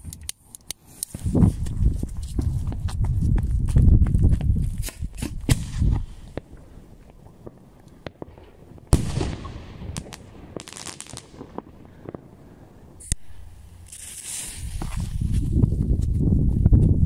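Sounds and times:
firework crackles: 0:04.8 - 0:12.4, 0:13.7 - 0:15.3
firework bang: 0:08.9 - 0:12.2.

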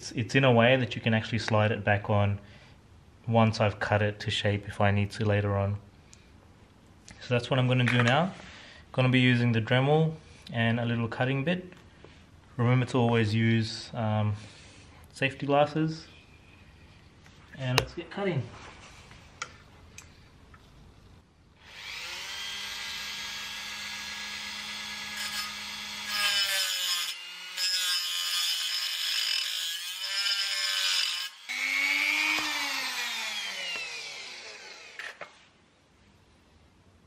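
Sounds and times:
rotary tool cutting sheet metal: 0:21.7 - 0:35.3.

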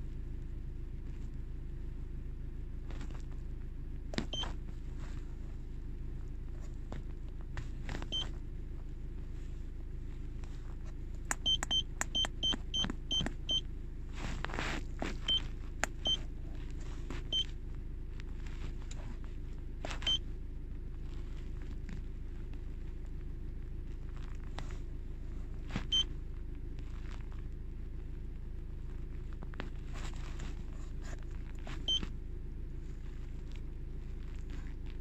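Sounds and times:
steady low hum: 0:00.0 - 0:35.0
short high beeps: 0:11.4 - 0:13.6.

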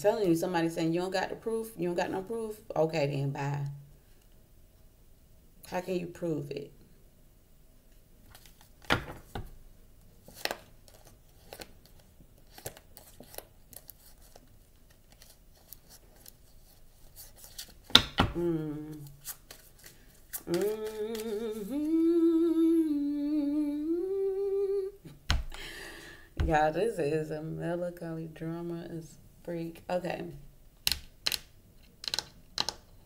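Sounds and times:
woman humming a slow tune: 0:18.4 - 0:19.1, 0:20.4 - 0:25.1.

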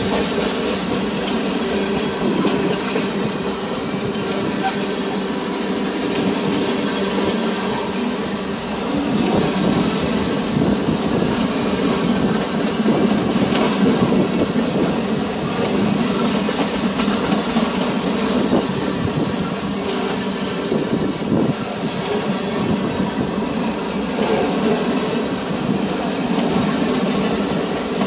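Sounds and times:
train wheel clicks: 0:00.0 - 0:07.8, 0:08.9 - 0:20.6
freight train rolling past: 0:00.0 - 0:28.0.

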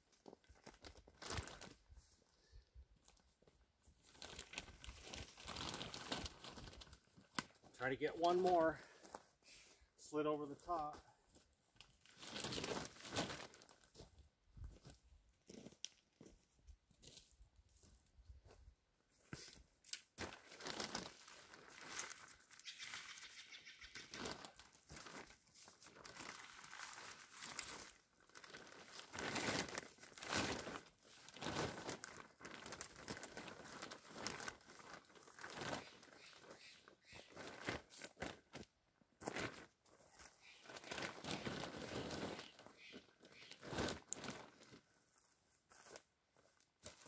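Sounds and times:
plastic bag crinkling and rustling: 0:00.1 - 0:01.9, 0:03.1 - 0:08.9, 0:11.8 - 0:14.0, 0:20.1 - 0:22.8, 0:24.0 - 0:36.7, 0:37.3 - 0:47.0.

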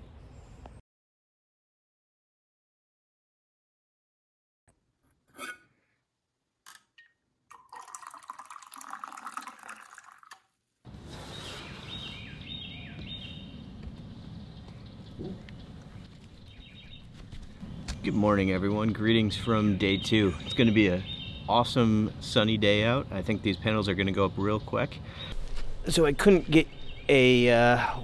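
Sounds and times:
outdoor background: 0:00.0 - 0:00.8, 0:04.7 - 0:28.0
coffee pouring into tumbler: 0:07.5 - 0:10.4
bird chirps: 0:11.2 - 0:13.7, 0:14.3 - 0:21.6, 0:26.3 - 0:28.0.

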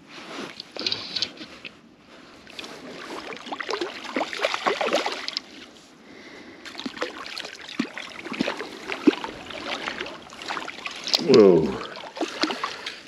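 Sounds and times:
fish splashing at water surface: 0:02.6 - 0:05.5, 0:06.7 - 0:13.0.

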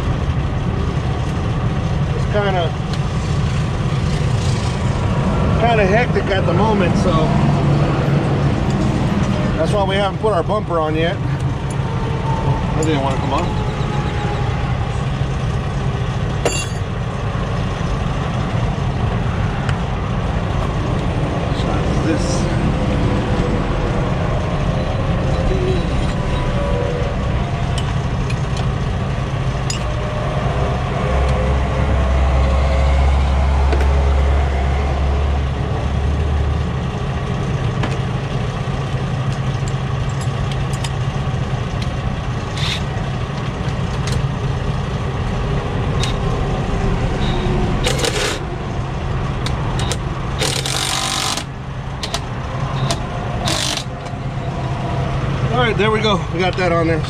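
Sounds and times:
diesel truck engine idling: 0:00.0 - 0:57.0.

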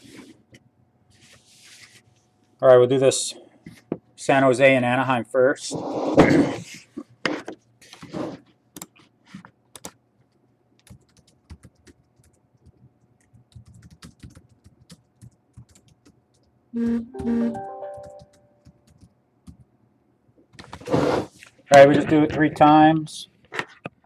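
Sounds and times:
typing on computer keyboard: 0:09.7 - 0:10.0, 0:10.8 - 0:16.5, 0:17.9 - 0:19.7.

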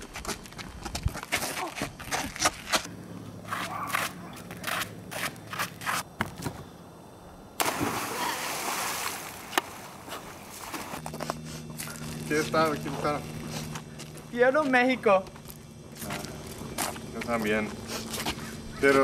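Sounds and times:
running footsteps on roof: 0:00.0 - 0:02.9
person splashing into pool: 0:07.6 - 0:11.0
water churning: 0:07.6 - 0:11.0.

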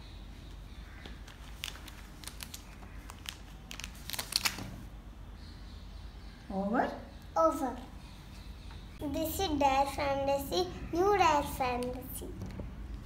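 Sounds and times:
plastic packets crinkling: 0:01.2 - 0:04.7.

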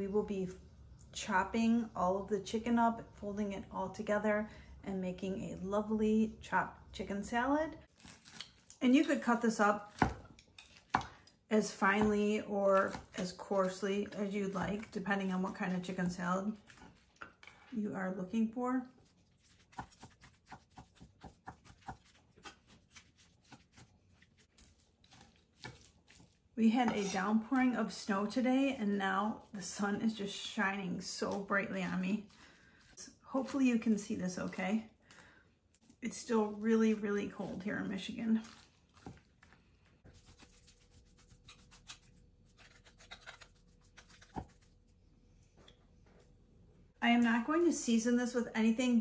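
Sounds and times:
knife chopping on wooden board: 0:19.5 - 0:23.9, 0:24.6 - 0:26.2
knife blade scraping: 0:40.3 - 0:44.4.

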